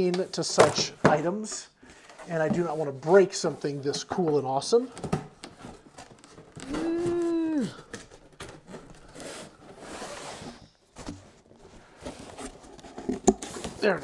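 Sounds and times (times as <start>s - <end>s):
cardboard box rustling: 5.0s - 14.0s.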